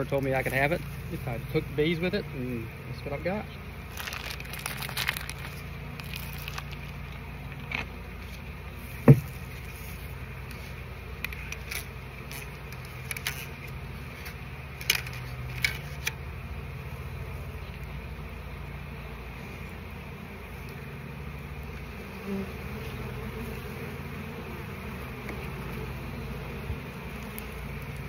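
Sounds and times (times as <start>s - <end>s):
bees humming: 0.0s - 28.0s
sharp knock: 9.0s - 9.3s.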